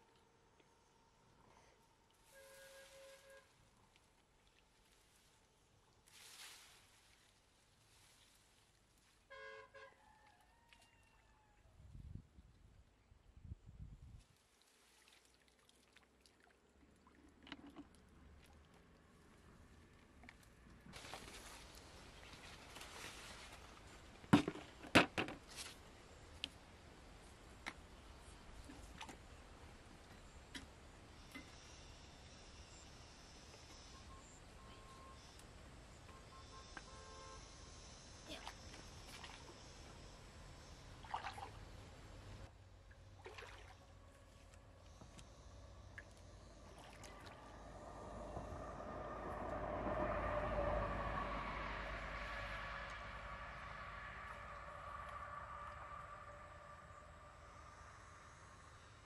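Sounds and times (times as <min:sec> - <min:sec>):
corn leaves rustling: 0:04.8 - 0:09.3, 0:21.0 - 0:24.3
footsteps in a cornfield: 0:21.0 - 0:24.3.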